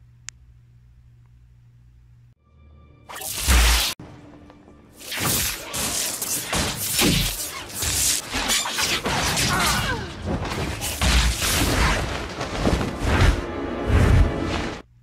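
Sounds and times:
orchestral score: 4.0s - 5.0s, 12.2s - 14.8s.

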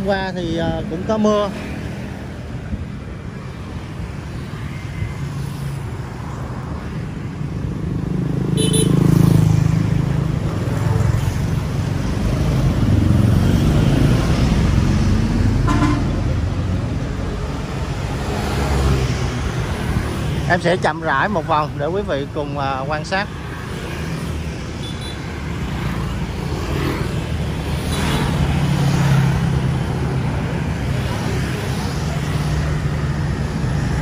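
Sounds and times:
vehicle engines passing: 0.0s - 34.0s
car horn beep: 8.6s - 9.0s, 15.6s - 16.2s.

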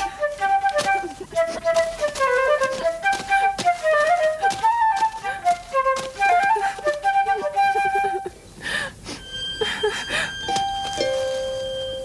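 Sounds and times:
flute melody: 0.0s - 8.4s, 9.1s - 12.0s
long held pure tones: 9.1s - 12.0s.

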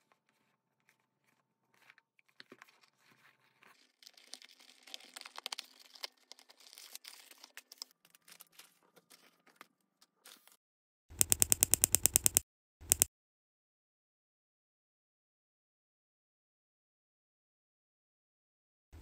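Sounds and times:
plastic bag crinkling: 3.7s - 9.6s.

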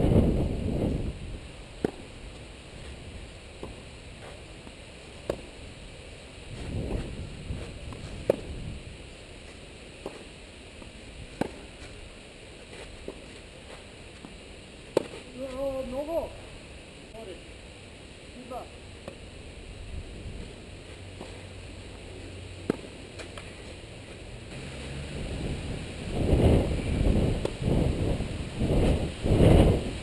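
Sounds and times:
tennis ball struck by rackets: 1.8s - 2.1s, 3.6s - 4.4s, 5.2s - 5.6s, 6.6s - 8.6s, 10.0s - 11.9s, 14.9s - 15.2s, 22.6s - 23.5s.

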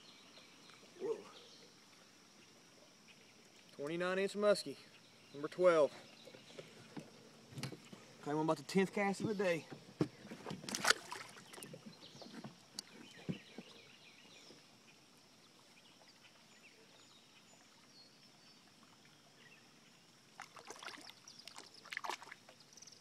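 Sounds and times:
water splashing: 5.7s - 13.7s, 15.5s - 22.7s.

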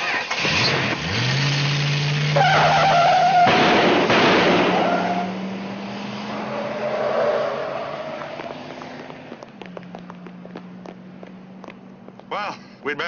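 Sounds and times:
car engine revving hard: 0.0s - 9.2s
tyres squealing: 2.3s - 3.8s, 4.5s - 5.5s, 6.2s - 10.4s.

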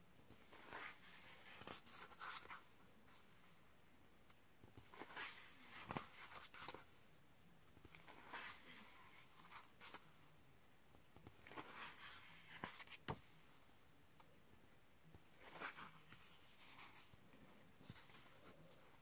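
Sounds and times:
paper pages turning: 0.4s - 3.3s, 4.8s - 7.0s, 7.8s - 10.1s, 11.3s - 13.3s, 15.2s - 17.2s.

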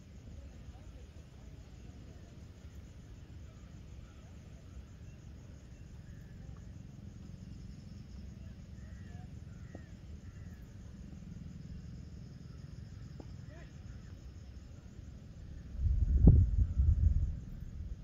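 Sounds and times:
insects trilling: 0.0s - 18.0s
low steady rumble: 14.5s - 18.0s.

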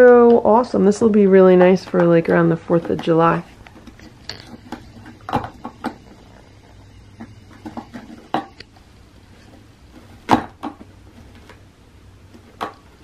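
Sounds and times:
cat pawing plastic toy: 0.0s - 6.4s.

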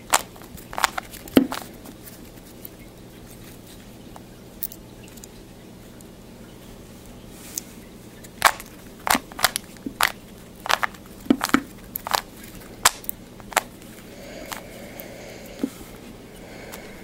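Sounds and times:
plastic puzzle cube clicking: 0.0s - 1.7s, 8.4s - 13.7s.

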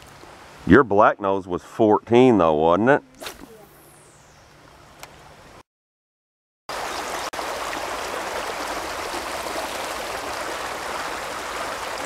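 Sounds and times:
flowing river water rushing: 6.7s - 12.0s.

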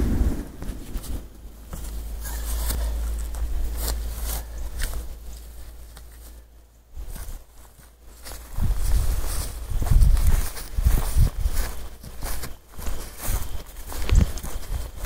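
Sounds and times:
steady low rumble: 0.0s - 11.7s
footsteps on dry grass: 0.0s - 15.0s
knocks and scuffs: 0.6s - 15.0s.

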